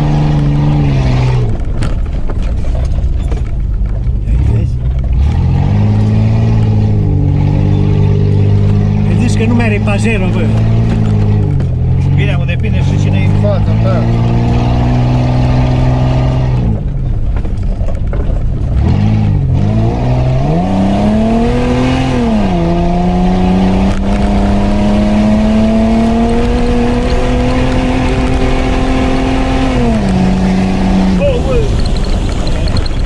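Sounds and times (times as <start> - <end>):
car engine revving from inside: 4.3 - 16.8, 18.7 - 31.9.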